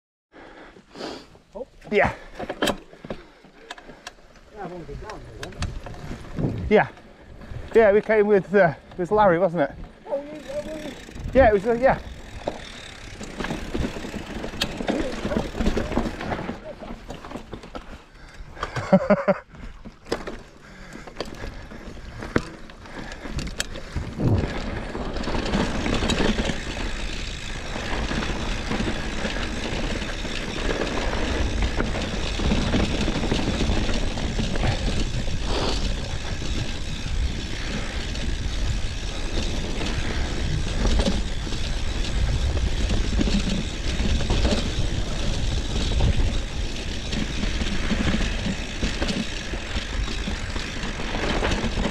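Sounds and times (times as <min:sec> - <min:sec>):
tyre noise on stony trail: 0:00.4 - 0:51.9
bike rattle: 0:01.6 - 0:51.9
wind rushing on microphone: 0:05.6 - 0:06.9, 0:23.4 - 0:26.0.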